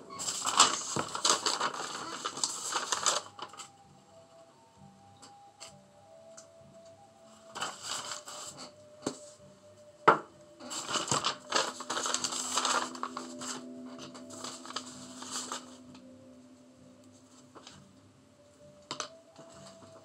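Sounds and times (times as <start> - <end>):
faint steady tones: 0.0 - 20.0
paper scraping on board: 0.1 - 3.5, 10.6 - 15.8.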